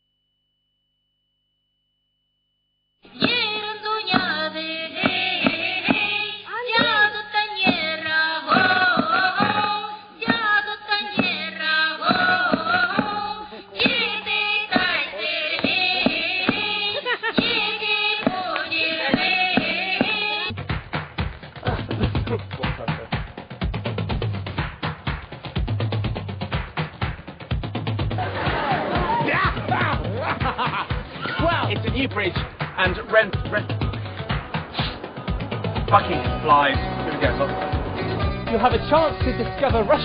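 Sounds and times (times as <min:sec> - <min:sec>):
women singing in a group: 0:03.2 - 0:20.5
regular drum beats: 0:04.2 - 0:40.0
low drone: 0:33.8 - 0:39.2.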